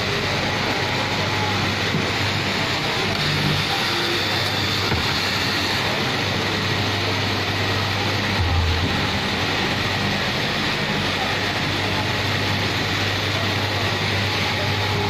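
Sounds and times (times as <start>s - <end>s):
cloth cutting machine running: 0.0s - 15.0s.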